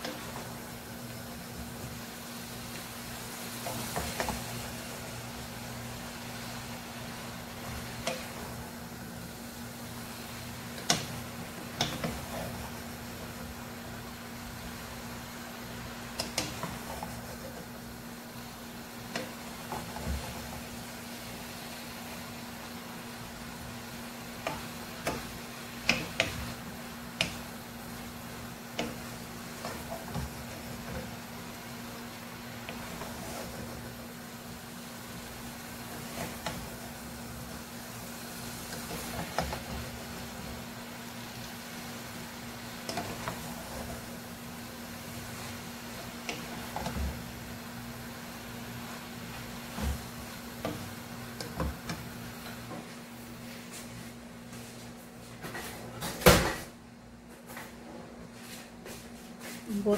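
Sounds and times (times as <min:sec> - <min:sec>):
wooden spatulas stirring noodles: 0:15.5 - 0:52.8.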